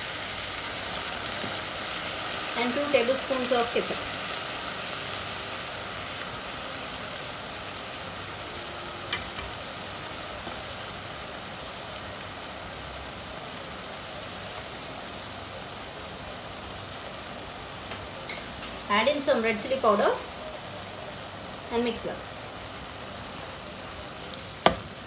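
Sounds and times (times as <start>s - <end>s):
vegetables sizzling in oil: 0.0s - 25.0s
sharp knock: 24.6s - 24.9s.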